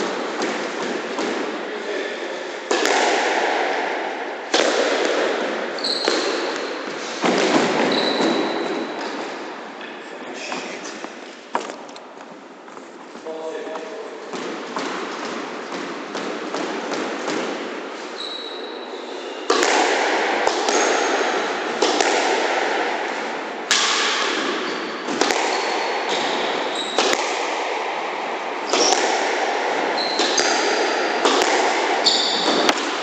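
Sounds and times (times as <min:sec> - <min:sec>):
ball hitting court walls: 0:00.0 - 0:10.0, 0:13.7 - 0:33.0
rackets hitting squash ball: 0:00.0 - 0:33.0
shoes squeaking on wooden floor: 0:05.7 - 0:11.9, 0:18.0 - 0:19.5, 0:24.6 - 0:27.0, 0:29.9 - 0:30.4, 0:32.0 - 0:32.7.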